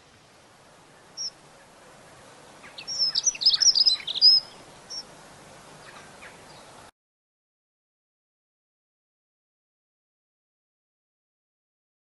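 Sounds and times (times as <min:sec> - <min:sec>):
bird warbling song: 0:00.9 - 0:06.9.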